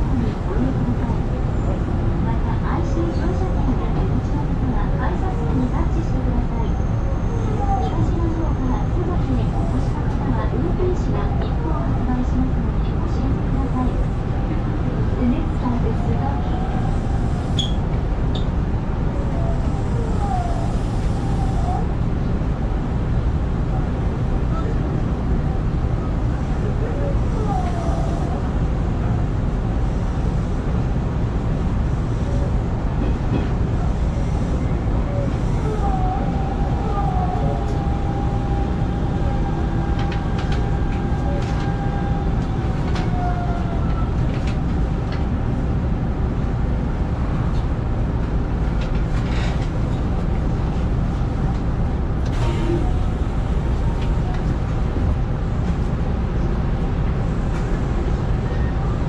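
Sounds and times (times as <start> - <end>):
train wheels rumbling: 25.8 - 58.7.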